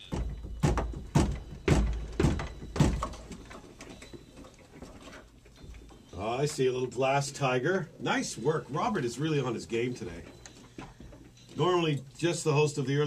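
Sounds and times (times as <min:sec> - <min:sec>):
heavy knocks on desk: 0:00.1 - 0:03.2.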